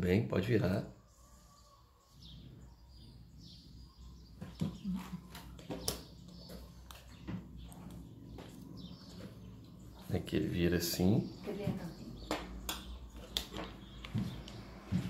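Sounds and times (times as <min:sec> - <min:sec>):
faint bird chirps: 0:00.9 - 0:10.1
knife clicking and tapping on wood: 0:12.3 - 0:14.2.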